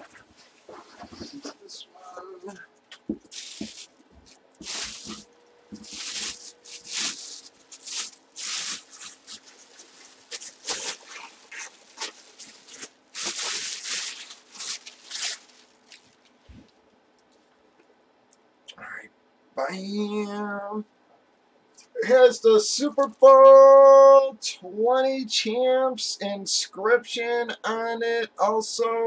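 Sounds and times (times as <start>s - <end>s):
plastic bag crinkling: 3.1s - 16.7s.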